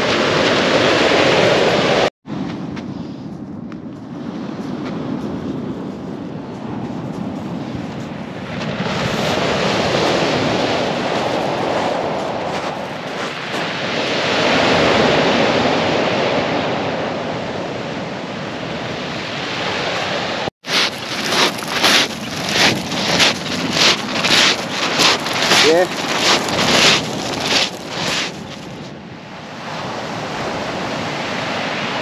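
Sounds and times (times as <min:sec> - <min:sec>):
waves breaking on shingle beach: 0:00.0 - 0:02.1, 0:08.4 - 0:16.5, 0:19.3 - 0:28.9
wind on microphone: 0:00.0 - 0:19.3, 0:20.6 - 0:29.2
footsteps crunching on pebbles: 0:11.0 - 0:13.8, 0:20.6 - 0:28.9.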